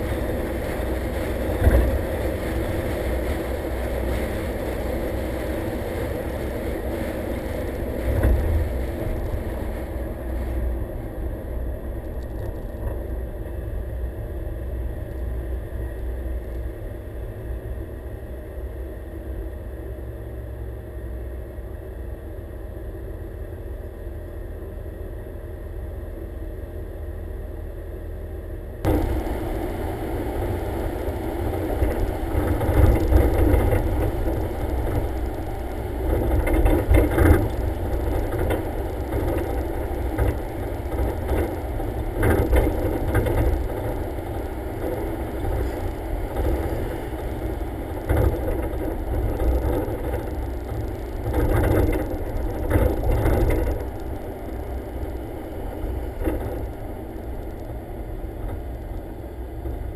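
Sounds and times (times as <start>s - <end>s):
car rattles: 0.0s - 13.3s, 28.8s - 59.8s
car engine: 0.0s - 21.6s, 28.2s - 59.9s
road rumble: 0.0s - 59.9s
wind on microphone: 28.8s - 59.9s.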